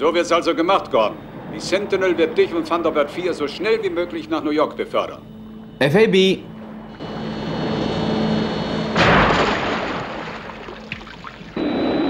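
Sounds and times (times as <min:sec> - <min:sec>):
steady engine hum: 0:00.0 - 0:12.0
loud rushing splash: 0:09.0 - 0:11.6.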